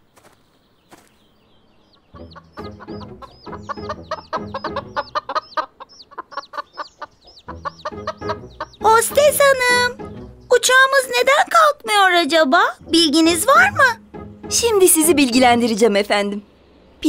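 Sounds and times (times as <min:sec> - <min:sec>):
high chick peeps: 0:01.8 - 0:10.3
cartoon chickens clucking: 0:02.0 - 0:11.7.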